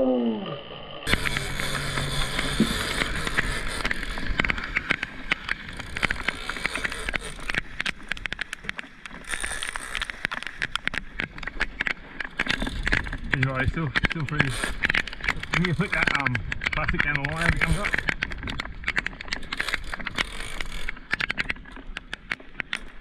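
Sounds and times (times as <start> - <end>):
low hum: 0.0 - 7.6
sharp clicks and ticks: 1.1 - 23.0
water rushing along boat hull: 1.1 - 23.0.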